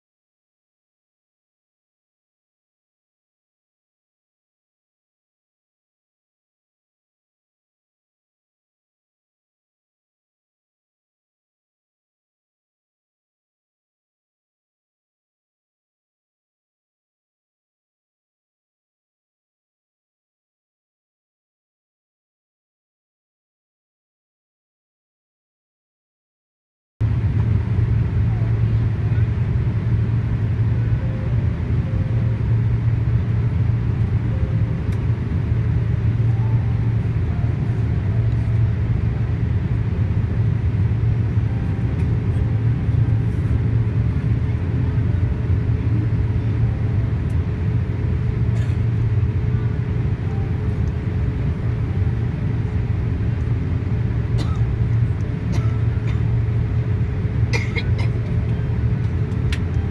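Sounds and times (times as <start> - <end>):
airplane cabin engine rumble: 27.0 - 59.9.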